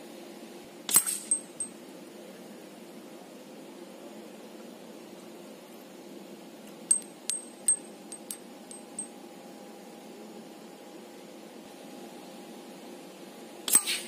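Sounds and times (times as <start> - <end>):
metal capsules clinking together: 0.9 - 1.8, 6.9 - 9.1.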